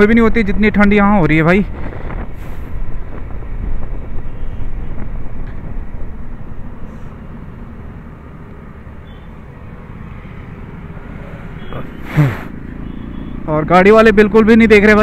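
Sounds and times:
wind rush: 0.3s - 6.8s
motorcycle engine at speed: 9.9s - 14.8s.

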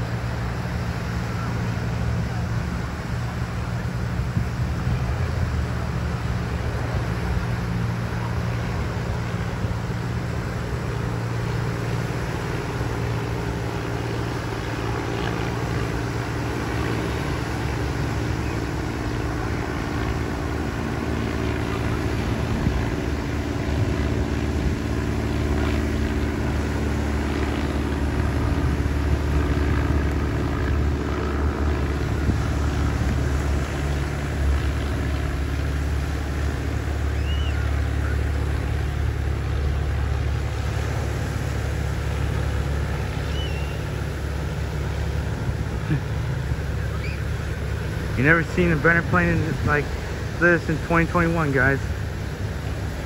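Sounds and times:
propeller plane droning overhead: 0.0s - 53.0s.

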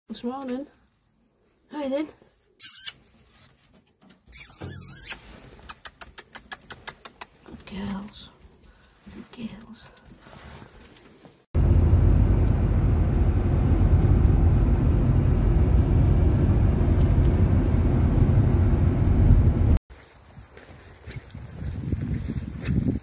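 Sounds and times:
road noise inside a car: 11.6s - 19.8s.

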